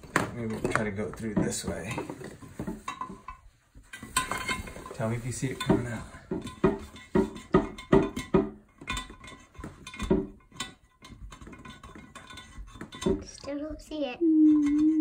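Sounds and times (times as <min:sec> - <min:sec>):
cable knocking in porcelain: 0:05.6 - 0:13.3.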